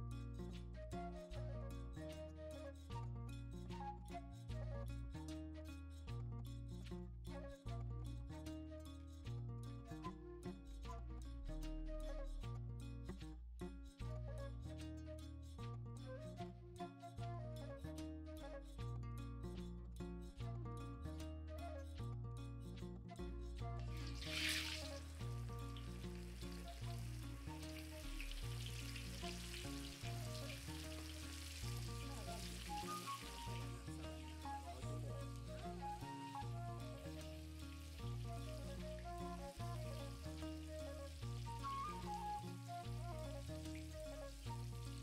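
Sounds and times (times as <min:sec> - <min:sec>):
instrumental background music: 0:00.0 - 0:45.0
fish deep frying in oil: 0:24.0 - 0:34.7, 0:37.2 - 0:39.1.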